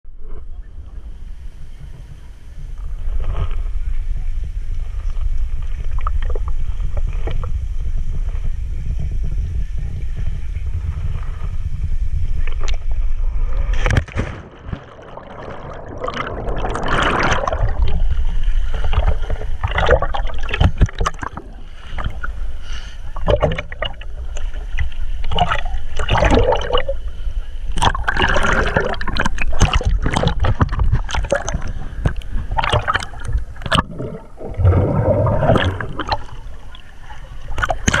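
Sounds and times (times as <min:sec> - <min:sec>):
low rumble: 0:00.1 - 0:38.0
water splashing and gurgling: 0:10.2 - 0:38.0.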